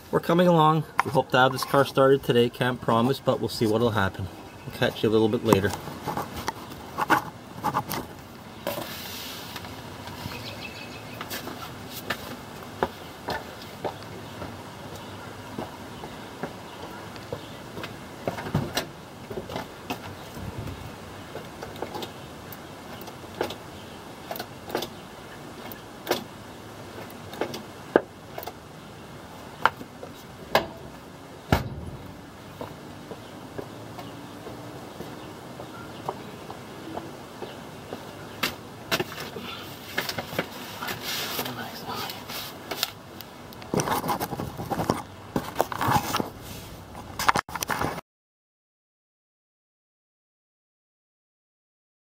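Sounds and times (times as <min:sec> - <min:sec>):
faint steady hiss: 0:08.2 - 0:15.1
loud clunk: 0:31.5 - 0:32.2.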